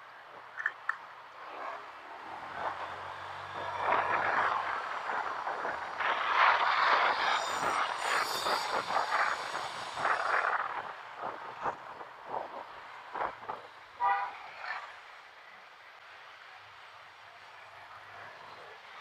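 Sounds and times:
wind rushing over microphone: 1.4 - 14.0.

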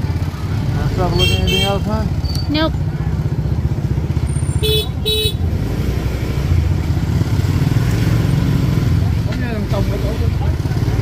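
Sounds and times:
motorbike engines running: 0.0 - 11.0
vehicle horn beeping: 1.1 - 1.9, 4.5 - 5.5.

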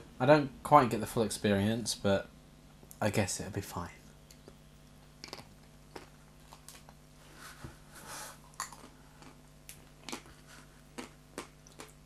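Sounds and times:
biting and chewing ice cream bar: 4.2 - 7.0, 8.5 - 12.0.

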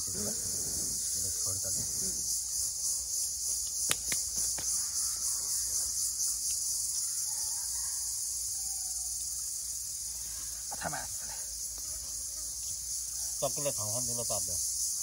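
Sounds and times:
insects chirping: 0.0 - 15.0
sharp clicks: 3.6 - 4.7.

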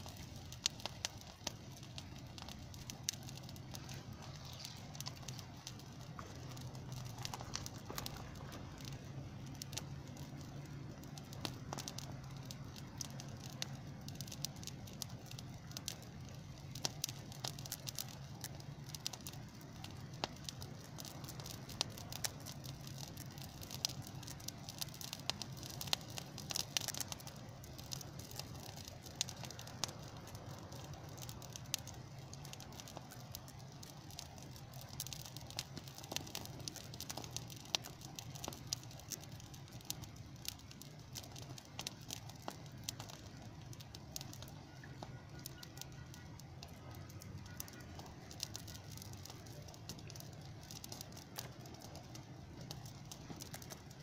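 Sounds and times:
steady low hum: 0.0 - 34.5
brush fire crackling and popping: 0.0 - 54.0.

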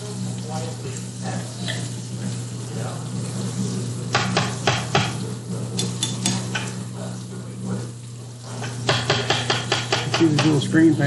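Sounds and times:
fish sizzling in hot oil: 0.0 - 11.0
utensil scraping a pan: 8.4 - 10.8.

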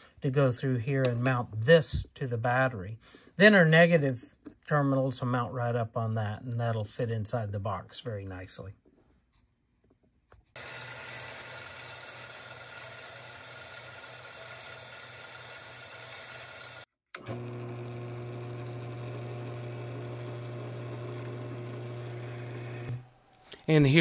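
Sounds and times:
bandsaw cutting metal: 10.6 - 23.0
drill press humming: 10.6 - 23.7.

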